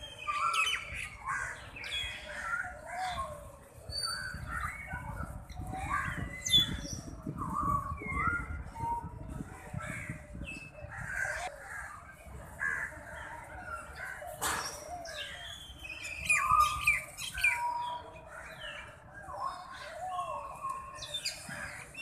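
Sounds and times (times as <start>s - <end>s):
birds chirping: 10.4s - 22.0s.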